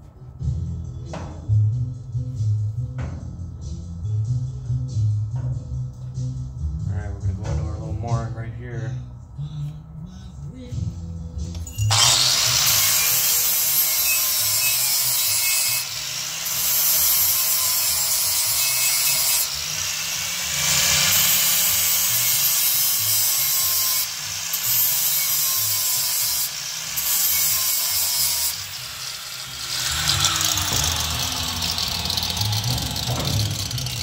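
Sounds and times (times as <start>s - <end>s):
power tool abrading metal: 11.6s - 34.0s.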